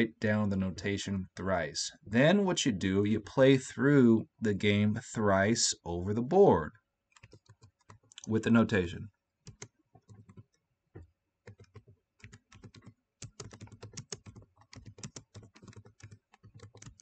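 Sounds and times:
keyboard typing clicks: 9.5s - 10.6s, 11.4s - 17.0s.

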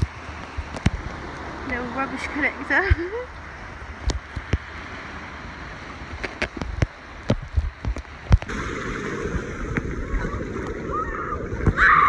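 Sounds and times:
water lapping against kayak: 0.0s - 12.0s
wind noise: 2.8s - 12.0s.

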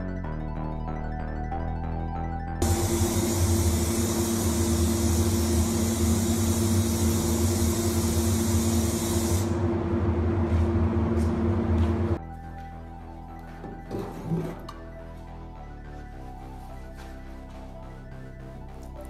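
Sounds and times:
spray gun hissing: 2.6s - 9.6s
steady low hum: 2.6s - 12.3s.

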